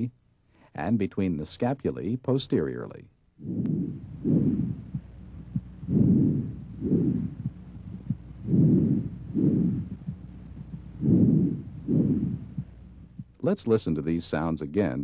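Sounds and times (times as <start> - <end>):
breathing through stethoscope: 3.4 - 10.2, 11.0 - 12.7
faint heartbeat thuds: 3.4 - 13.4.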